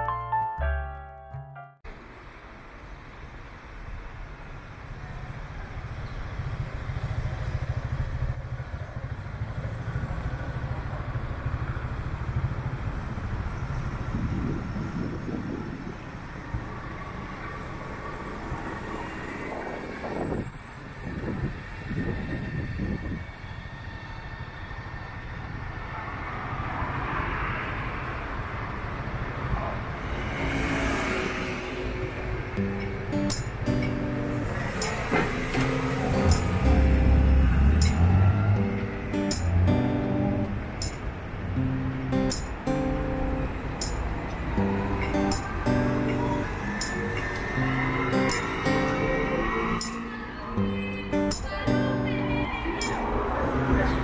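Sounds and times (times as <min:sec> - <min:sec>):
motor vehicle rumble: 0:00.7 - 0:54.0
vehicle low rumble: 0:32.0 - 0:54.0.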